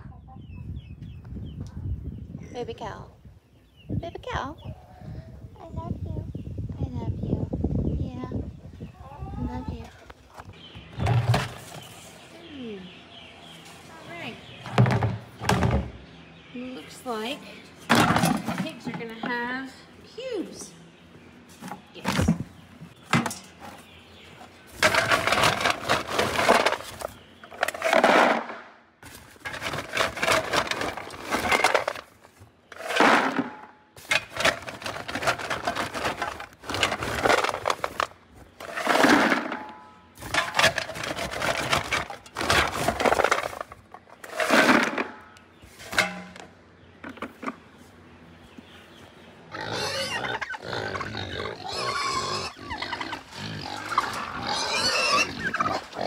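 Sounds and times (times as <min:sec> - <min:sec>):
farm animal noise: 0:46.8 - 0:56.0
pigs squealing: 0:49.5 - 0:56.0.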